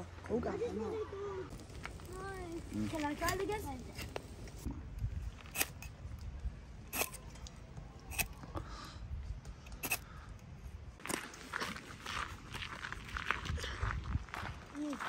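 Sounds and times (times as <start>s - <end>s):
footsteps crunching on gravel: 11.0s - 15.0s.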